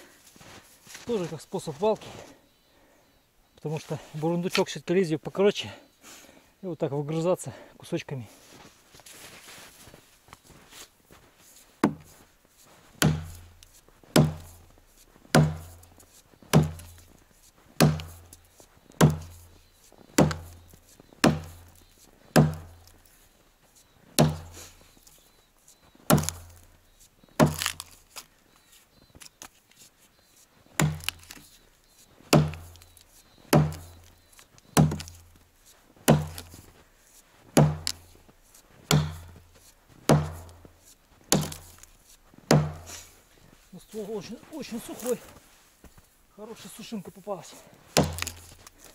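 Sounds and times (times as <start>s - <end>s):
axe chopping into tree trunk: 11.8s - 12.1s, 13.0s - 17.2s, 17.8s - 19.5s, 20.1s - 23.0s, 24.2s - 24.8s, 26.1s - 26.8s, 27.4s - 28.0s, 30.8s - 31.5s, 32.3s - 34.2s, 34.8s - 35.4s, 36.0s - 36.7s, 37.6s - 38.1s, 38.9s - 39.5s, 40.1s - 43.1s, 48.0s - 48.8s.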